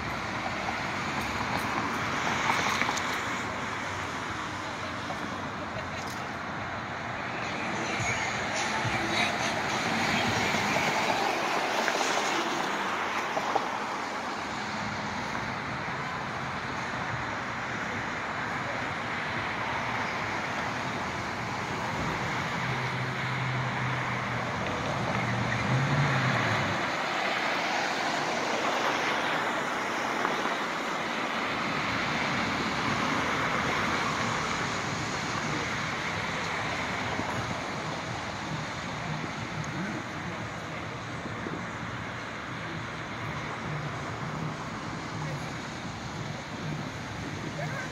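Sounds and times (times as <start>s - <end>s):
distant road traffic hiss: 0.0s - 47.9s.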